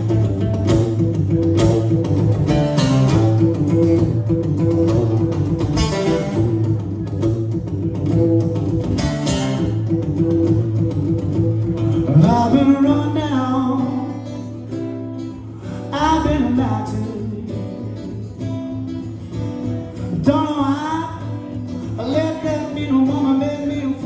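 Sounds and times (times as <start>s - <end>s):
acoustic guitar: 0.0s - 24.0s
man singing: 12.0s - 14.6s, 15.7s - 18.6s, 20.0s - 24.0s.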